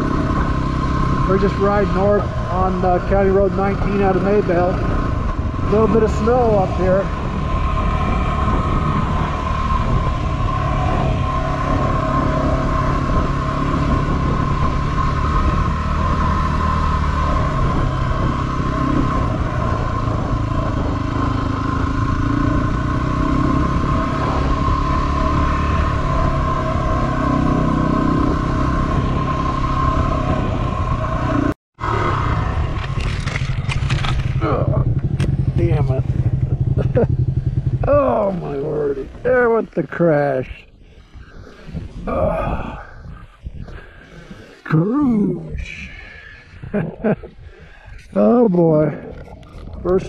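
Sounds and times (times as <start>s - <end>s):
motorcycle engine running: 0.0s - 39.6s.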